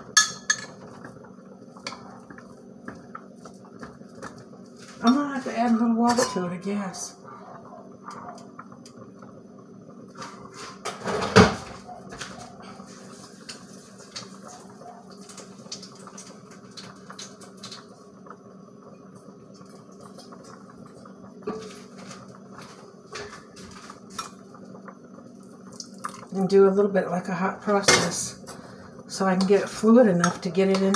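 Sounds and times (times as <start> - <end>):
metal cookware clattering: 0.1 - 0.8, 6.0 - 6.6.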